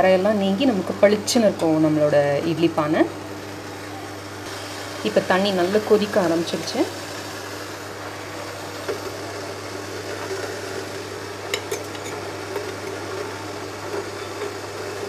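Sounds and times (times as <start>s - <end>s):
water boiling in steel pot: 4.5s - 15.0s.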